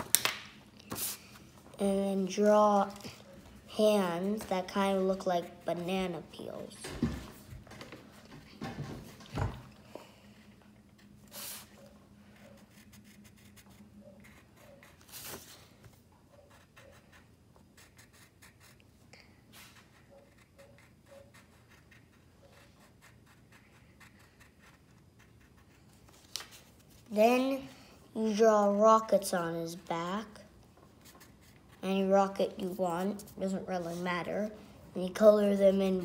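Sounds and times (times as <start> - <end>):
pencil scratching on paper: 12.4 - 15.5, 16.3 - 18.8, 19.6 - 26.0, 30.9 - 34.3.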